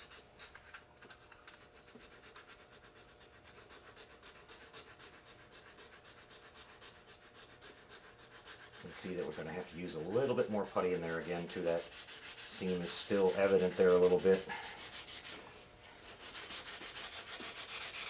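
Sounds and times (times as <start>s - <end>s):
sandpaper scratching: 0.0s - 18.0s.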